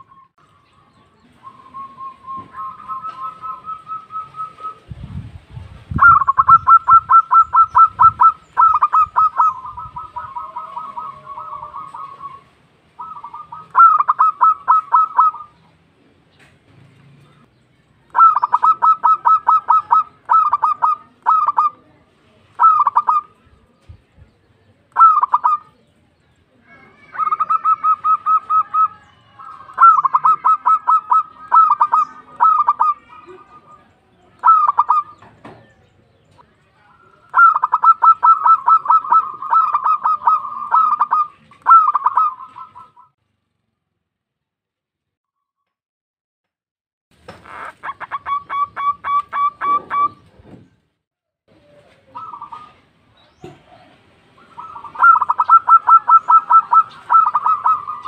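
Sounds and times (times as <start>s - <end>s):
dove cooing: 1.5s - 4.9s, 5.9s - 15.7s, 18.1s - 23.4s, 25.0s - 25.8s, 26.8s - 36.4s, 37.0s - 43.2s, 47.4s - 50.3s, 51.7s - 58.0s.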